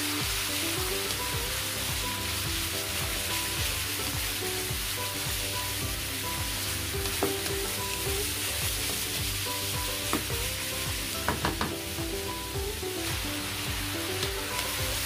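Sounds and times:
pork sizzling in hot oil: 0.0 - 15.0
spatula knocking against pan: 11.2 - 11.8.

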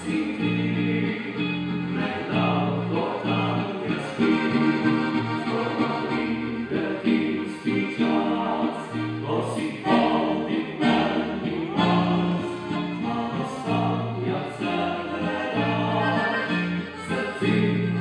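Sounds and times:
accordion: 0.0 - 18.0
acoustic guitar: 0.0 - 18.0
upright bass: 0.0 - 18.0
voices singing in harmony: 0.0 - 18.0.

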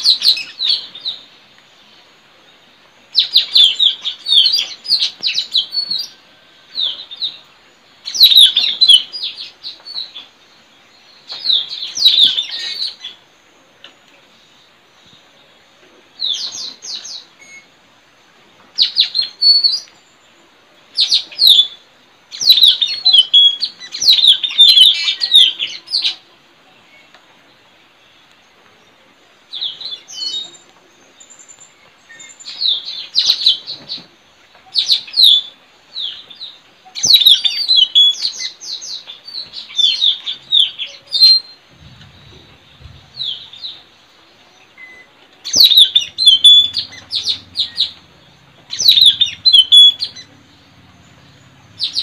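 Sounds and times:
parrots chirping: 37.0 - 43.8, 44.8 - 52.0.

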